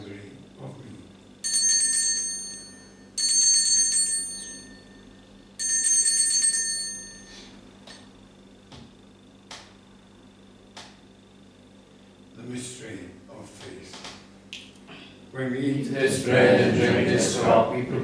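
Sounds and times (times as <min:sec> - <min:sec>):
altar bells ringing: 0:01.4 - 0:07.6.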